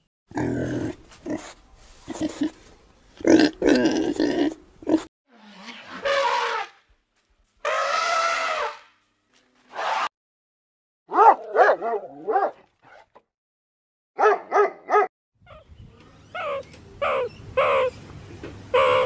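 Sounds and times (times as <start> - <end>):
dog barking and yelping: 11.1 - 13.0, 14.2 - 15.7, 16.3 - 18.0, 18.7 - 19.0
noisy animal calls: 15.5 - 18.0, 18.7 - 19.0.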